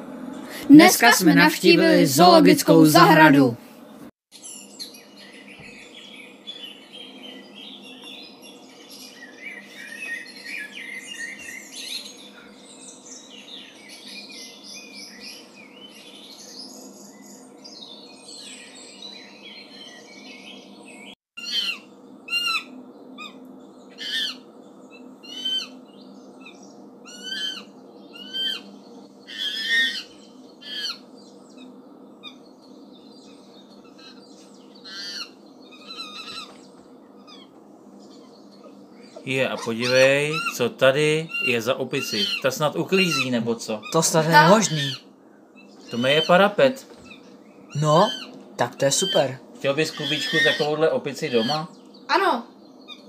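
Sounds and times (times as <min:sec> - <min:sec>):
steady low hum: 0:00.0 - 0:04.1, 0:04.8 - 0:53.0
small birds chirping: 0:00.3 - 0:53.0
single bird calling: 0:21.4 - 0:24.4, 0:25.0 - 0:25.8, 0:26.4 - 0:32.4, 0:33.8 - 0:53.0.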